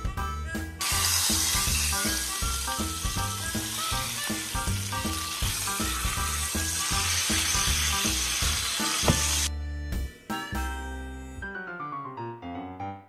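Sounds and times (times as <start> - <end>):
soft background music: 0.0 - 13.0
meat sizzling in a pan: 0.8 - 9.5
sharp knock: 9.0 - 9.4.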